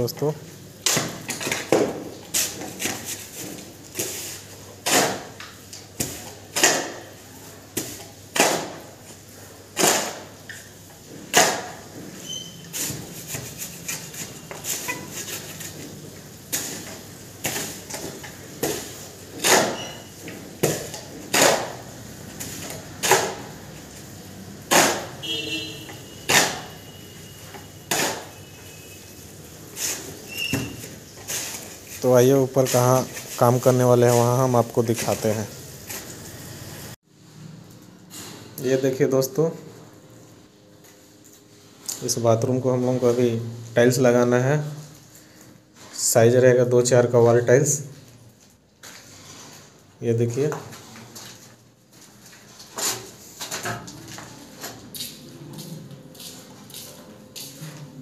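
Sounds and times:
shovel scraping concrete floor: 0.8s - 5.4s, 6.0s - 24.0s, 24.6s - 36.1s, 48.8s - 49.9s, 50.7s - 58.0s.

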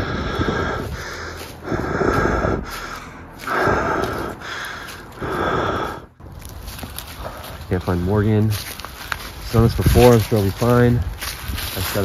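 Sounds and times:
heavy slow breathing: 0.0s - 7.7s.

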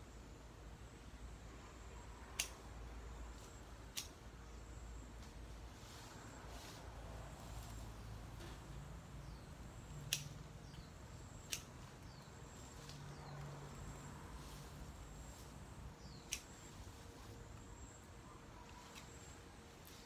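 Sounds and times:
pruning shears snipping stems: 2.3s - 2.7s, 3.3s - 4.2s, 10.0s - 13.9s, 14.6s - 16.8s, 18.6s - 20.0s
small birds chirping: 7.6s - 20.0s.

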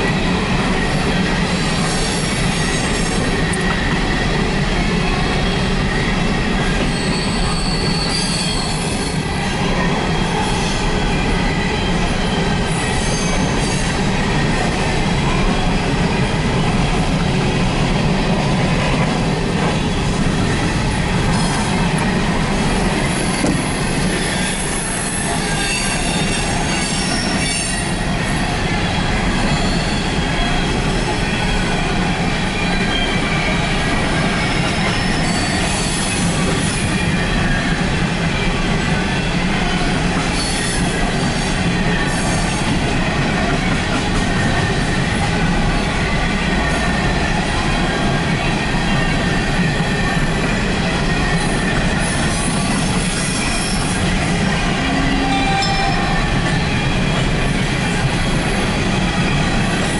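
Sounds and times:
train wheels rumbling on rails: 0.0s - 59.9s
high wheel squeal: 5.3s - 9.3s, 10.0s - 14.0s, 23.0s - 28.5s, 29.3s - 31.8s, 32.5s - 37.8s, 40.3s - 42.8s, 49.0s - 59.9s.

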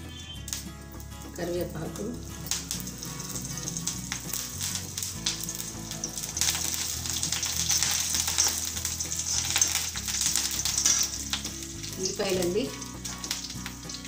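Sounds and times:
seeds sizzling in hot oil: 0.0s - 14.0s.

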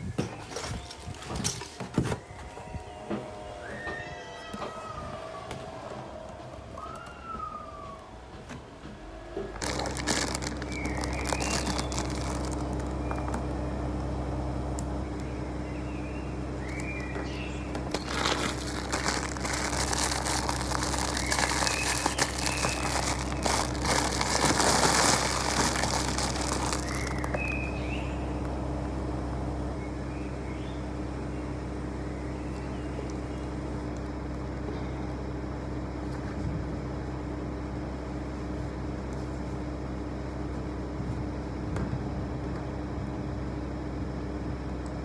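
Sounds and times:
steady low hum: 2.2s - 45.0s
plastic packaging crinkling: 9.6s - 13.4s, 17.8s - 27.7s.

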